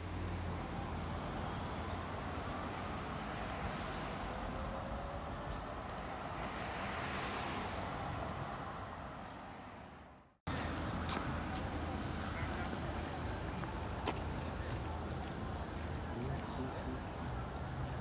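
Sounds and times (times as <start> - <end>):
distant road traffic hum: 0.0 - 18.0.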